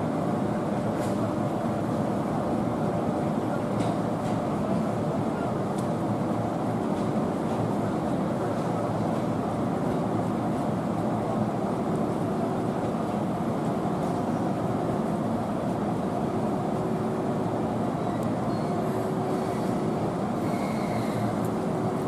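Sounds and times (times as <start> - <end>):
electric train rolling in: 16.7 - 22.0.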